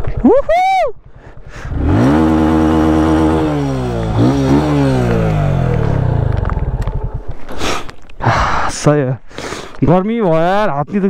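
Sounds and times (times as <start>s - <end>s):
motorcycle engine revving: 1.6s - 7.6s.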